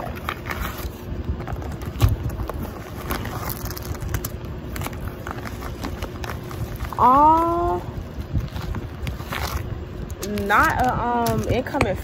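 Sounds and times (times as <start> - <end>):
plastic mailer crinkling: 0.0 - 12.0
wind rumble on microphone: 5.0 - 12.0.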